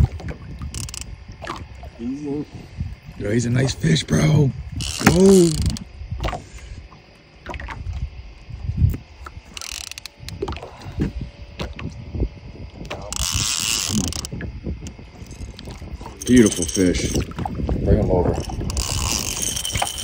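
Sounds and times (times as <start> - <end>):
fishing reel clicking: 0.7 - 1.2, 4.8 - 5.9, 9.5 - 10.4, 12.8 - 20.0.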